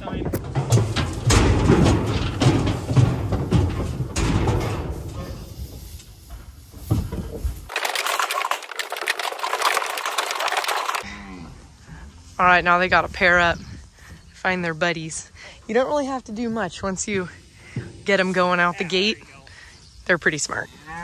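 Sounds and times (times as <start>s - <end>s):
hooves clattering on metal: 0.0s - 11.0s.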